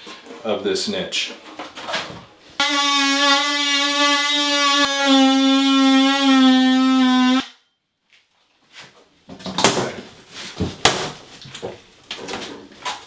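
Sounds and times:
oscillating multi-tool buzzing: 0:02.6 - 0:07.5
board knocking and cracking: 0:10.6 - 0:12.4.

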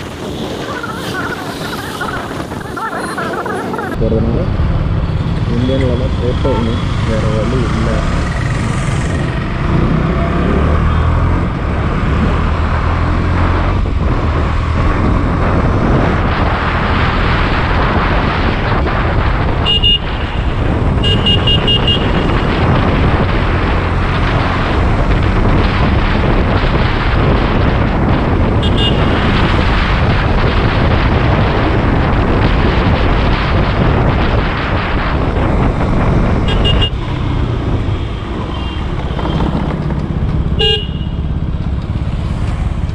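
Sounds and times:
riding wind on microphone: 0:00.0 - 0:42.9
vehicle horn toots: 0:19.6 - 0:22.2, 0:28.6 - 0:29.4, 0:36.5 - 0:37.0, 0:40.6 - 0:41.2.

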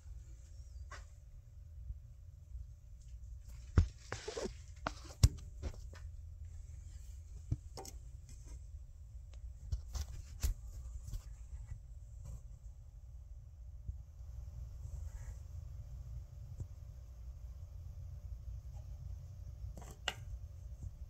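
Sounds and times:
low steady rumble: 0:10.6 - 0:21.0.

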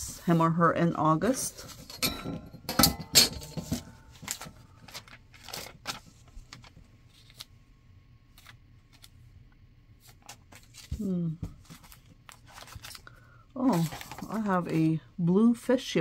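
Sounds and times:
paper rustling and crinkling: 0:03.6 - 0:07.5, 0:08.3 - 0:09.2, 0:10.0 - 0:15.0.

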